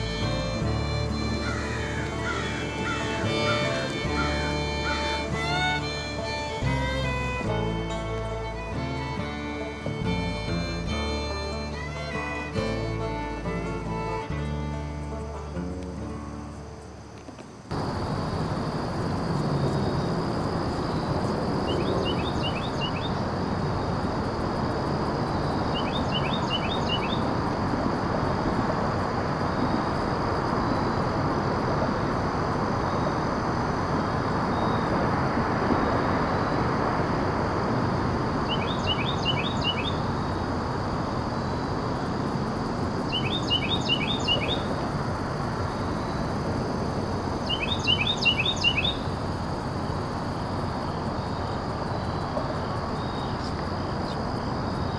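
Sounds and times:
wind in trees: 0.0 - 54.9
bird chirping: 17.7 - 23.2, 25.4 - 27.3, 38.4 - 40.4, 42.4 - 54.2.

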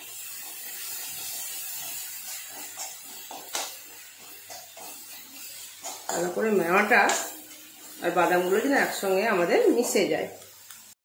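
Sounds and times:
faint steady hiss: 0.0 - 11.0
steel spoon scraping a pan: 0.2 - 10.4.

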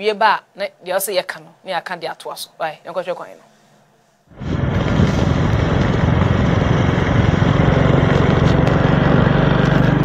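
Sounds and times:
vehicle engine running: 4.3 - 10.0.

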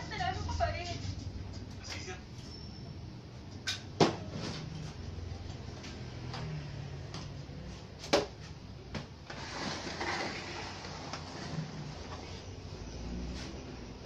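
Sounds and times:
television set scraping on workbench: 9.3 - 12.5.

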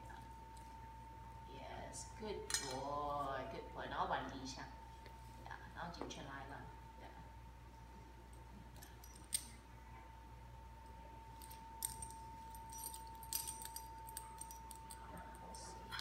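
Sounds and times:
faint steady hum: 0.0 - 16.0
chain leash clinking: 11.4 - 16.0.

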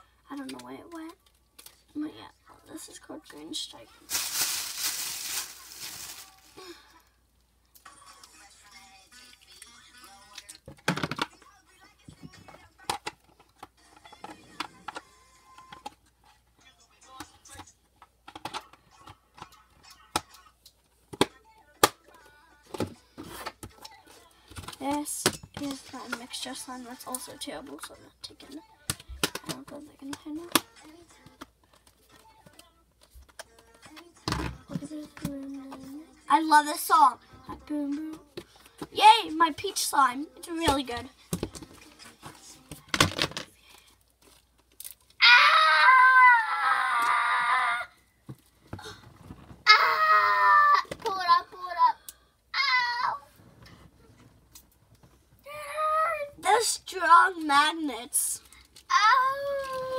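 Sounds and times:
slime squishing in plastic bag: 4.1 - 6.8
child squealing: 45.2 - 47.9, 49.7 - 50.9, 52.6 - 53.3.

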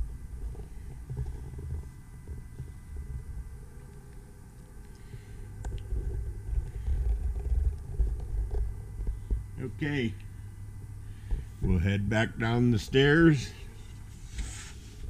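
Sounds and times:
camera handling rumble: 0.0 - 9.6
faint steady hum: 0.0 - 15.0.

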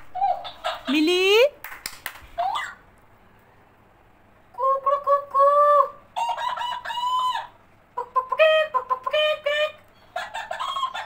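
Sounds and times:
talking toy electronic voice: 4.6 - 11.0.

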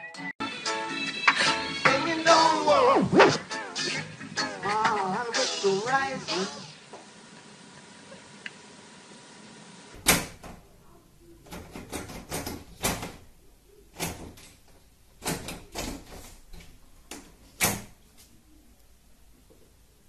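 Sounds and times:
door handle rattling: 10.0 - 10.6, 11.4 - 13.3, 14.0 - 18.0
wooden door banging in frame: 10.0 - 10.6, 11.5 - 13.3, 14.0 - 16.8.

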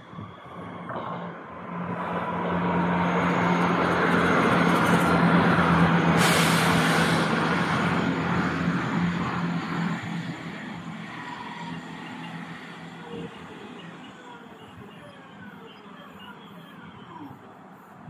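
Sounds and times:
train wheels rumbling on rails: 0.0 - 14.4.

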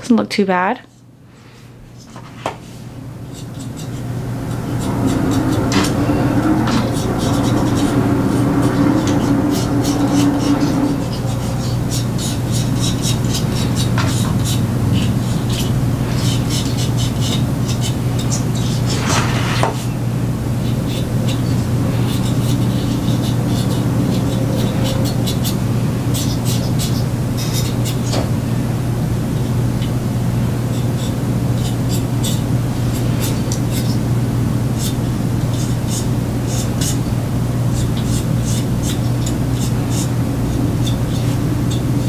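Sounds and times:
steady low hum: 0.0 - 42.0.

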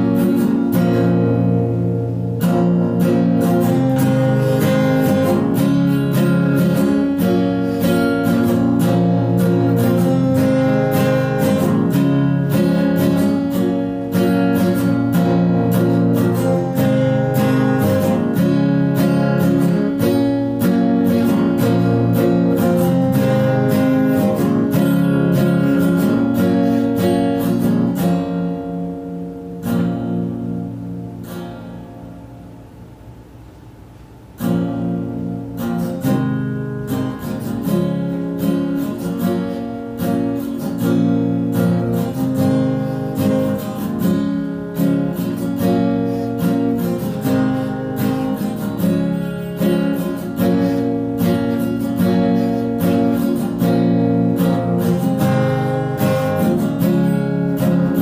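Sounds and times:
strummed acoustic guitar: 0.0 - 58.0.

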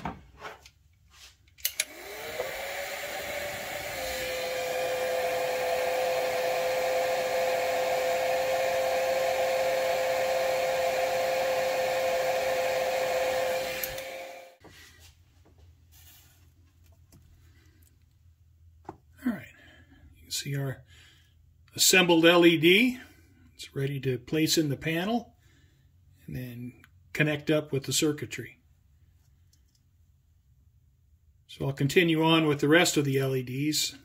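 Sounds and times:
heat gun switch click: 1.6 - 2.6, 13.7 - 14.1
heat gun fan whine: 1.6 - 14.6.

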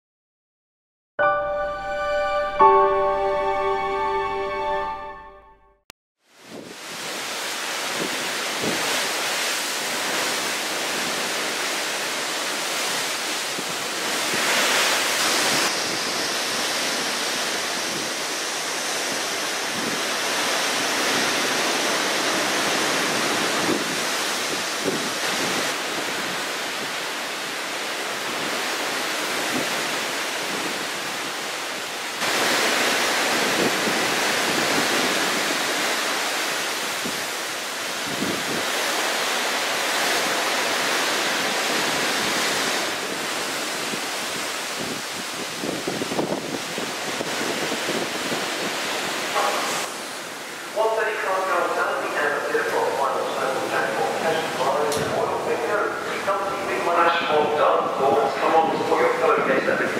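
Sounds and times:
wind: 6.2 - 59.9
rough sea waves: 6.3 - 59.9.

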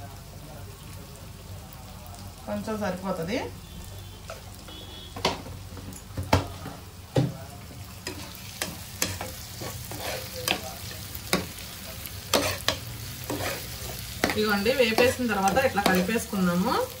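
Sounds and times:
soft sizzle of frying: 0.0 - 17.0
spatula scraping frying pan: 8.0 - 11.6, 12.3 - 16.3.

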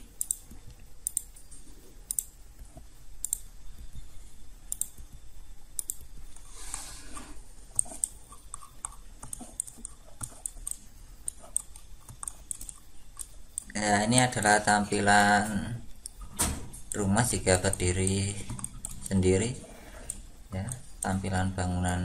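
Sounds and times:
mouse and keyboard clicking: 0.1 - 3.5, 4.7 - 6.8, 7.7 - 13.8, 16.8 - 19.2.

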